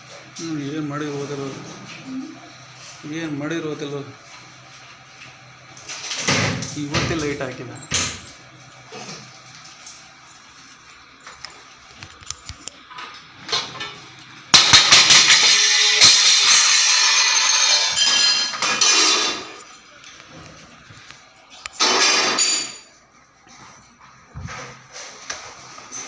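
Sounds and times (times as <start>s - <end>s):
metal vessels clattering: 13.5s - 19.8s, 21.8s - 22.9s
steel utensils clinking: 14.6s - 19.8s.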